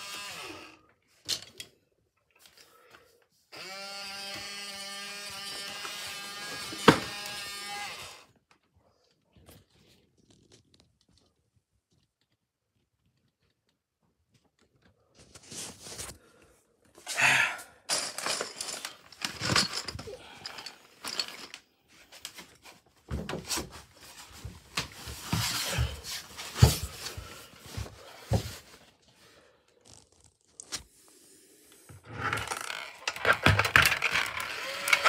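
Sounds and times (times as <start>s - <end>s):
plastic toys clicking on wood floor: 17.9s - 21.6s, 32.2s - 35.0s
plastic maze ball turning: 32.0s - 35.0s.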